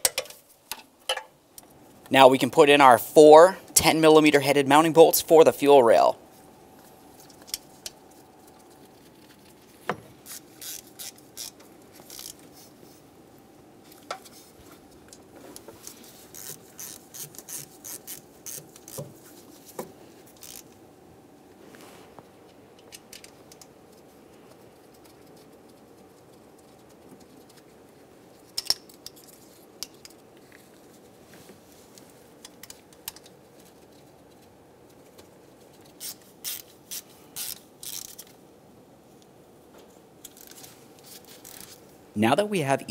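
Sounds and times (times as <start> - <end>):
faint steady hum: 0.0 - 42.9
metal bolts and wrench clinking: 28.6 - 30.0.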